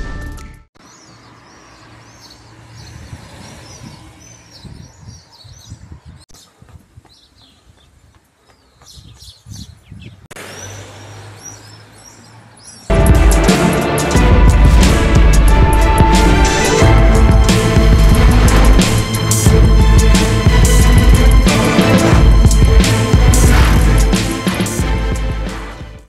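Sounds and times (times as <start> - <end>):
small birds chirping: 0.8 - 12.9
street traffic rumble: 0.8 - 26.0.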